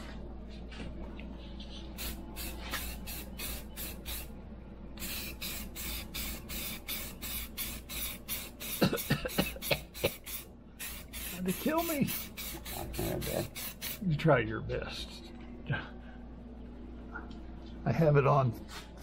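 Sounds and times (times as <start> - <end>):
aerosol can spraying in hissing bursts: 1.9 - 4.3, 5.0 - 14.0.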